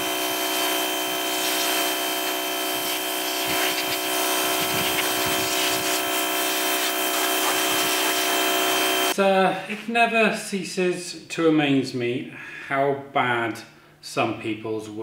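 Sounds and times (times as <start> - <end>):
pressure washer machine hum: 0.0 - 9.2
pressure washer spray hiss: 0.3 - 9.1.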